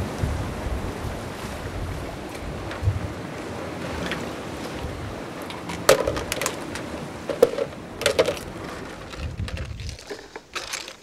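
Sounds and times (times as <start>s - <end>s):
surf: 0.0s - 11.0s
wind: 0.0s - 11.0s
shellfish clacking in bucket: 5.4s - 11.0s.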